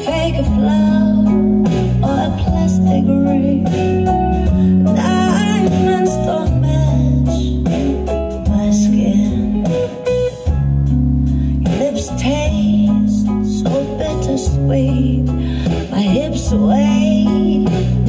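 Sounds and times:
song with guitar and singing: 0.0s - 18.0s.

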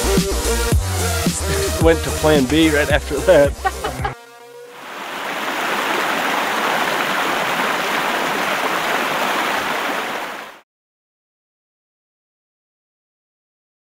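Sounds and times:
rushing river water: 4.8s - 10.6s.

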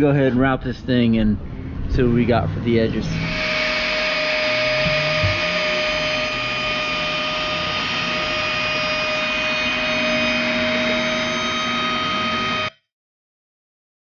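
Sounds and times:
electric router cutting wood: 2.9s - 12.8s.

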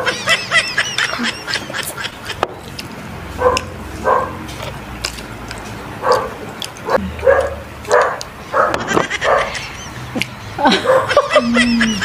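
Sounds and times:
eating clicks: 2.3s - 3.8s, 4.5s - 8.4s, 10.1s - 10.4s.

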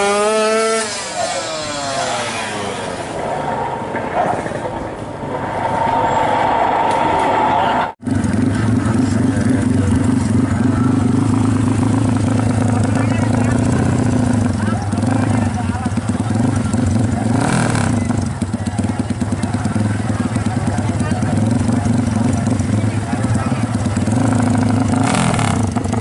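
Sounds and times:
motorcycle engine revving: 0.0s - 5.6s, 7.4s - 26.0s
motorcycle engine idling: 8.0s - 26.0s.

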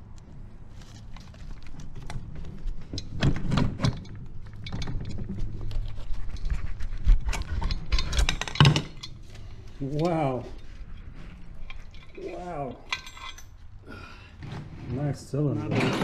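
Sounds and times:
metal clinks knocks and scrapes: 2.8s - 13.8s.

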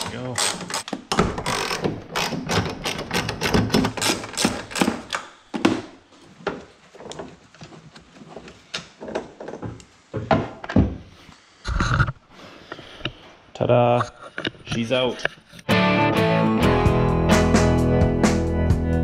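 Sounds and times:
hand tools clicking and knocking: 0.0s - 5.8s.

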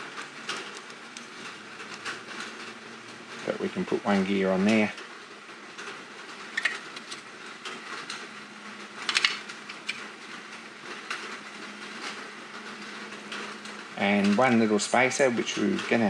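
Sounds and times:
small metal parts clicking: 9.0s - 10.1s.

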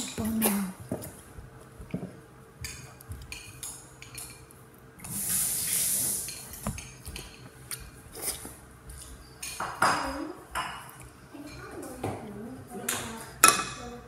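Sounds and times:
loud hissing rush: 5.1s - 6.4s
tableware clinking: 12.9s - 13.8s.

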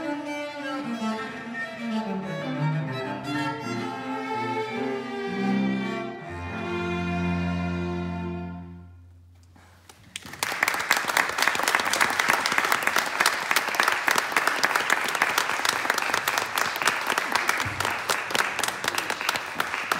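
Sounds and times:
violin and cello playing: 0.0s - 9.0s
audience applause: 10.1s - 19.9s.

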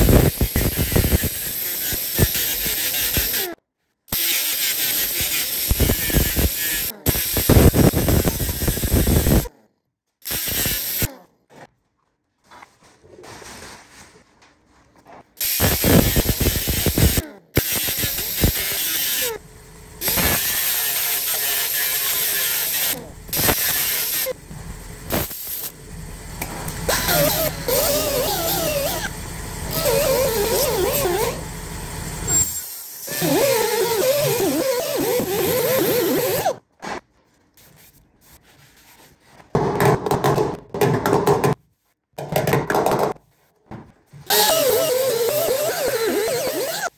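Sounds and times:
pneumatic grinder grinding metal: 0.0s - 9.5s, 10.2s - 11.2s, 15.4s - 36.6s, 44.3s - 46.9s.

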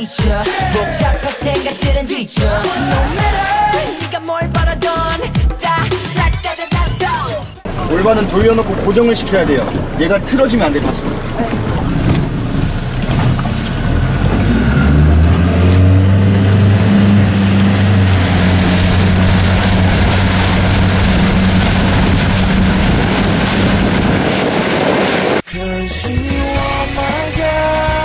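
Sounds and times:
boat engine revving: 2.4s - 25.5s
water rushing: 7.6s - 25.4s
wind: 7.6s - 25.5s.

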